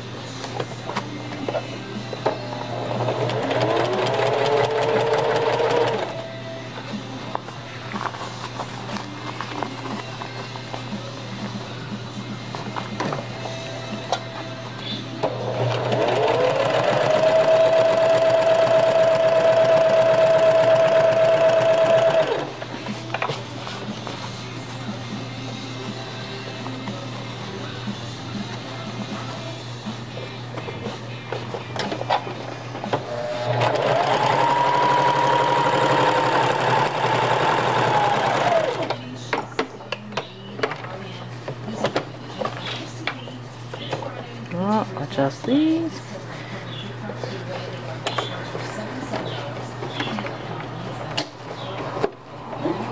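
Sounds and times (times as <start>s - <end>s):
sewing machine motor humming: 2.8s - 6.2s, 15.4s - 22.5s, 33.1s - 38.9s.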